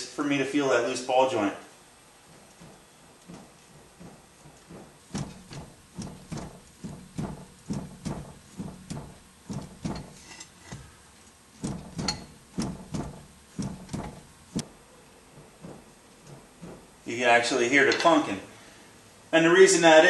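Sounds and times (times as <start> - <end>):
ball joint clunking: 4.0 - 14.6.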